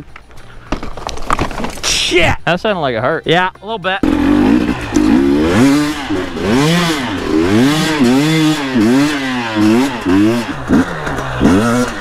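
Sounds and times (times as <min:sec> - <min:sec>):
dirt bike engine revving: 0:04.0 - 0:12.0.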